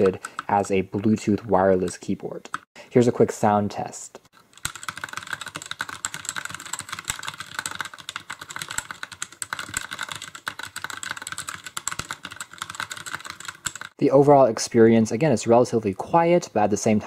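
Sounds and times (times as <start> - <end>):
fast typing on mechanical keyboard: 0.0 - 1.2, 4.4 - 14.0.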